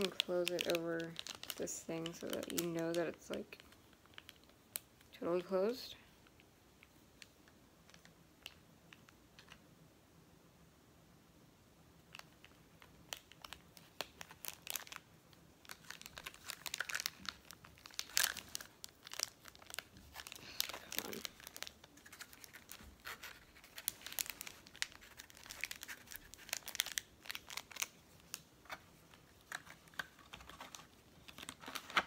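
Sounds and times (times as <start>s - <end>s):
plastic bag crinkling: 0.0s - 5.8s, 12.1s - 32.0s.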